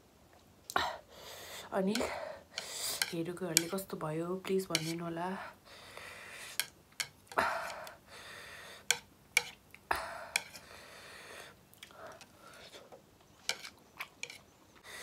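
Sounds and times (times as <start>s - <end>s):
person eating noodles: 8.9s - 14.4s.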